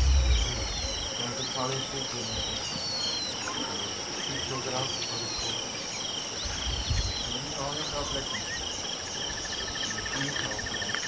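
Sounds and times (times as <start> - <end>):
low rumble: 0.0 - 1.2
insect buzz: 0.0 - 2.5
pulsing insect chirp: 0.0 - 11.0.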